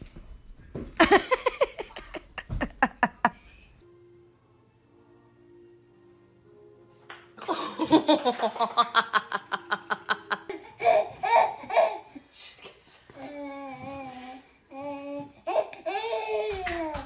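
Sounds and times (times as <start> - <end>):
baby laughing: 7.5 - 12.2
pulsing laughter: 7.6 - 11.0.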